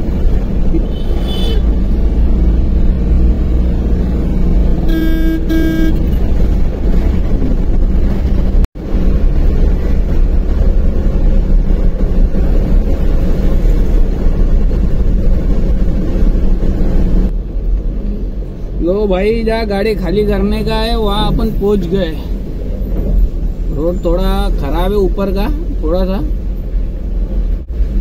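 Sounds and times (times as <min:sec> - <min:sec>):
truck engine and road rumble: 0:00.0 - 0:28.0
horn toots: 0:04.9 - 0:06.2.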